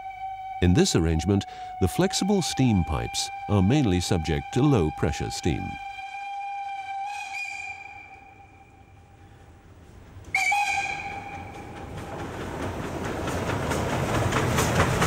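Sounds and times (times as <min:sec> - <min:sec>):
steam whistle: 0:00.0 - 0:09.0, 0:10.3 - 0:11.8
steam locomotive exhaust beats: 0:00.0 - 0:15.0.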